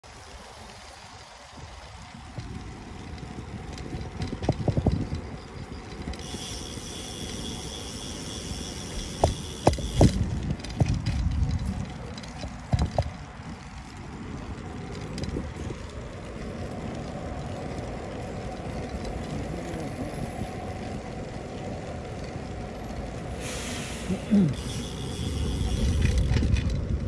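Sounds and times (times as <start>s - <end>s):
road and wind rumble: 0.0s - 27.0s
high steady whine: 6.2s - 10.2s
knocks from pavement bumps: 9.1s - 13.2s.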